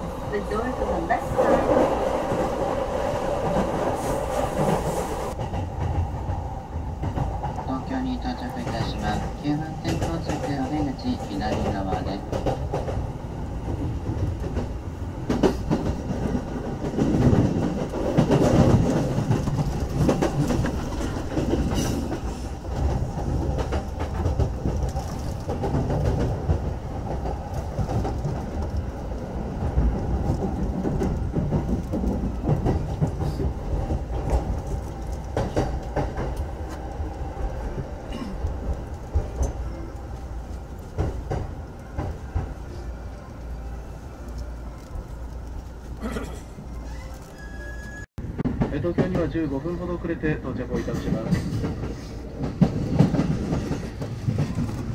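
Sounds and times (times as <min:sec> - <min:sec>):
train wheels rumbling on rail: 0:00.0 - 0:54.9
clatter over rail joints: 0:13.7 - 0:29.0, 0:50.8 - 0:54.9.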